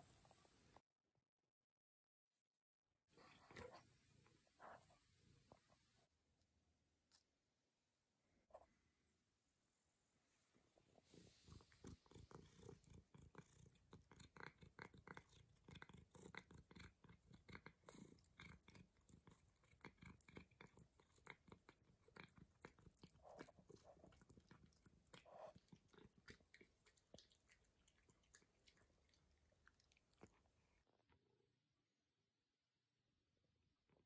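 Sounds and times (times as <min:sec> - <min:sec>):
cat chewing: 0:11.1 - 0:31.0.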